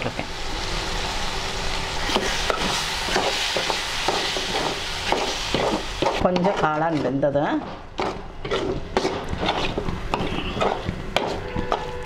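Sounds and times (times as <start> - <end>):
mushrooms sizzling in pan: 0.0 - 7.4
metal spatula scraping pan: 8.4 - 12.0.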